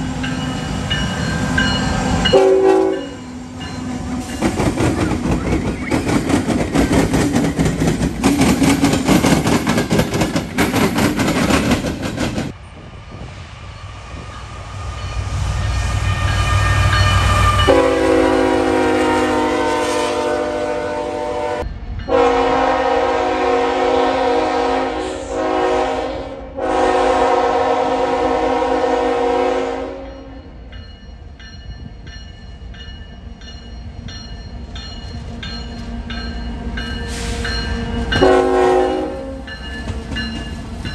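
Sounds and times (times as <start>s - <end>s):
diesel locomotive engine rumble: 0.0s - 40.9s
freight train wheel and rail noise: 0.0s - 40.9s
locomotive air horn blasts: 2.3s - 3.2s, 15.9s - 30.4s, 37.1s - 39.5s.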